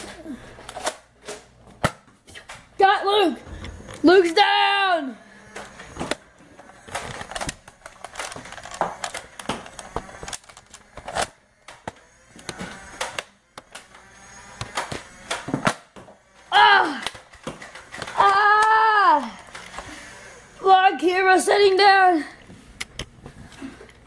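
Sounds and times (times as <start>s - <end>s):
plastic toy blasters clicking: 6.8s - 15.8s, 16.8s - 19.9s
child vocal sounds: 16.5s - 17.1s, 18.2s - 19.5s.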